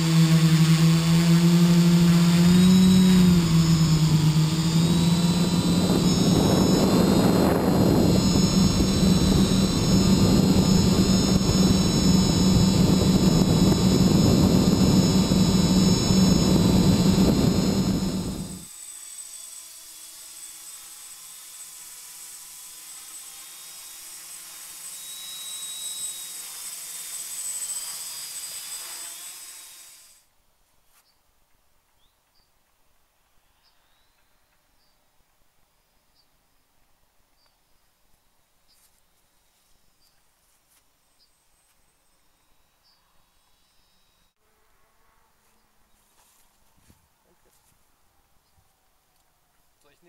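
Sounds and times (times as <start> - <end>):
drone motors humming: 0.0 - 18.7.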